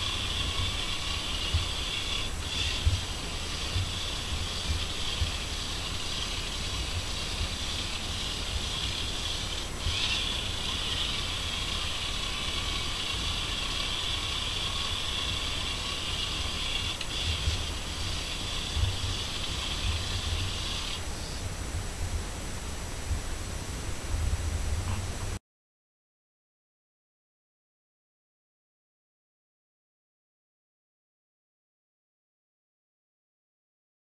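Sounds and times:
toy train wheels knocking: 0.0 - 21.0
small electric motor running: 0.0 - 21.4.

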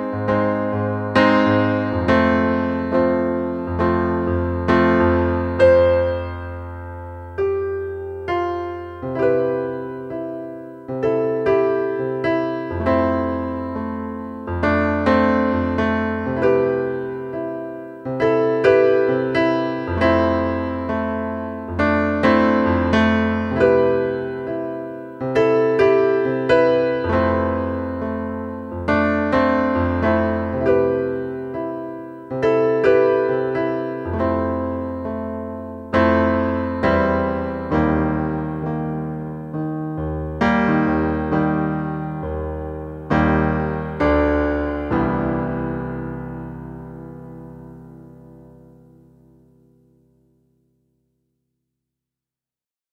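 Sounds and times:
solo piano chords: 0.0 - 51.1.

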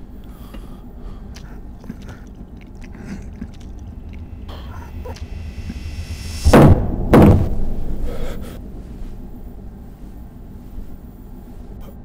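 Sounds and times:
heavy thuds with rumble: 3.8 - 11.0.

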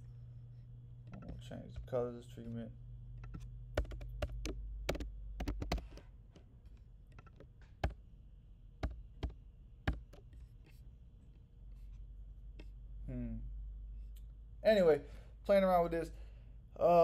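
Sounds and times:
typing on computer keyboard: 3.2 - 6.0.

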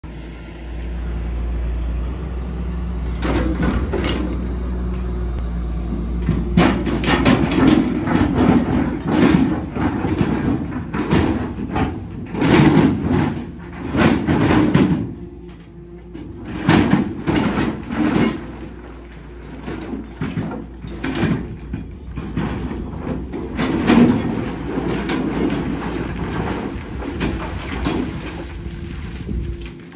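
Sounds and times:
excavator engine hum: 0.0 - 29.9
bucket scraping rock and gravel: 6.2 - 15.3, 16.2 - 29.9.

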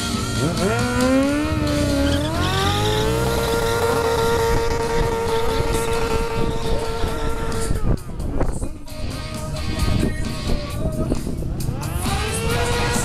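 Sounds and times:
motorcycle engine revving: 0.0 - 13.0
tyre spinning in a burnout: 0.4 - 8.0.

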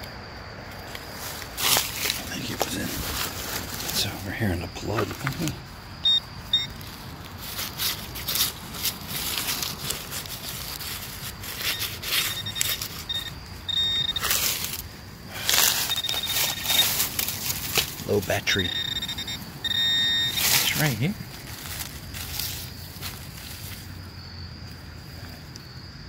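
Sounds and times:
metal detector beeps: 6.0 - 6.8, 11.4 - 14.8, 15.5 - 17.2, 18.1 - 21.0
digging tool scraping soil: 7.4 - 14.8, 15.4 - 19.1.

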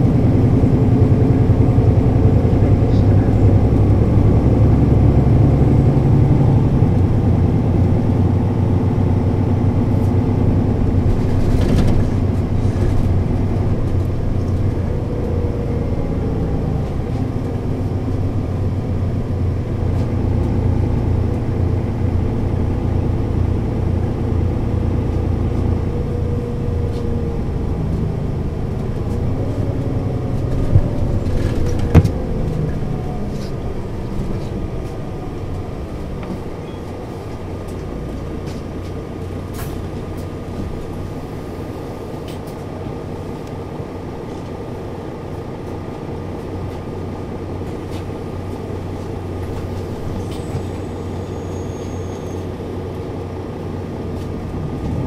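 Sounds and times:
diesel bus engine running: 0.0 - 55.0.

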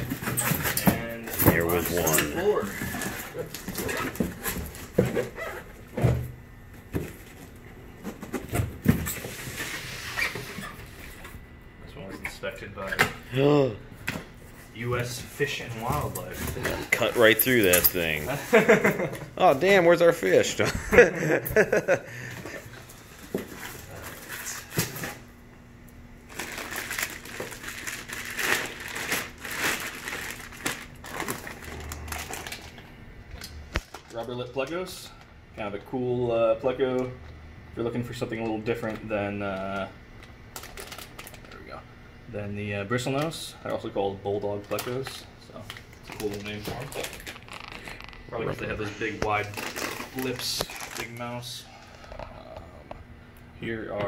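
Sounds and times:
plastic bags crinkling: 26.3 - 32.9, 40.5 - 41.6, 45.6 - 52.2.

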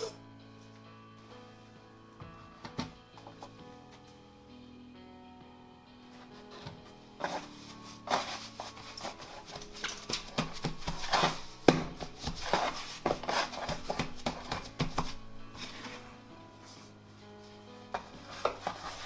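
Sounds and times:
soft background music: 0.0 - 19.0
dough knocking and rubbing: 6.4 - 16.1, 17.9 - 19.0.

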